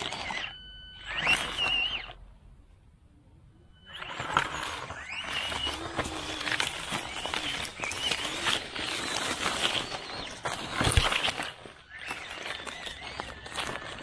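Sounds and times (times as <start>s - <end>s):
small electric motor whining: 0.0s - 2.2s, 3.8s - 14.0s
tyres crackling over leaves: 4.0s - 14.0s.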